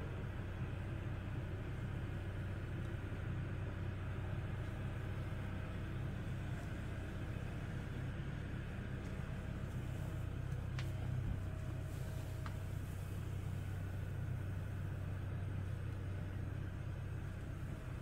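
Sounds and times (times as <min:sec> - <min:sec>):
mill machinery humming: 0:00.0 - 0:18.0.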